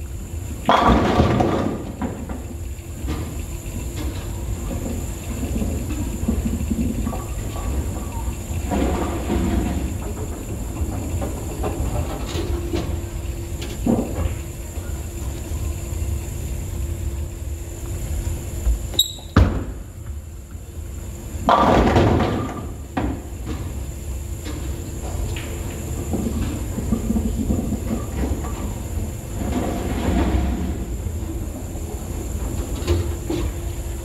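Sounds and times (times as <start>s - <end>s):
bowling pins crashing: 21.4s - 22.8s.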